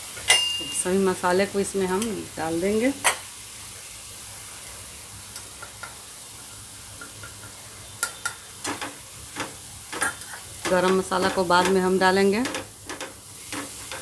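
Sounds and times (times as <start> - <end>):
paste sizzling in oil: 0.0 - 14.0
spatula scraping a pan: 8.7 - 14.0.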